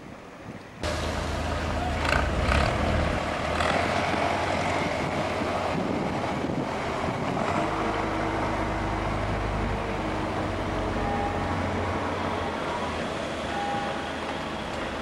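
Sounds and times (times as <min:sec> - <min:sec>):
engine drone: 0:00.8 - 0:15.0
wind on microphone: 0:03.8 - 0:08.0.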